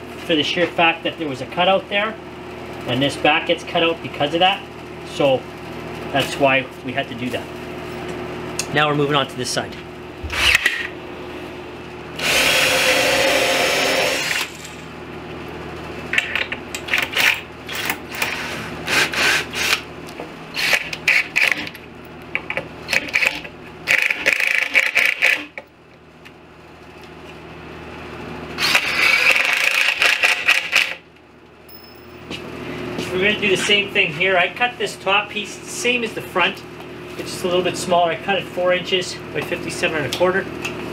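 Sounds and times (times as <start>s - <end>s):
cordless drill running into panel: 12.2s - 14.6s, 28.6s - 31.0s.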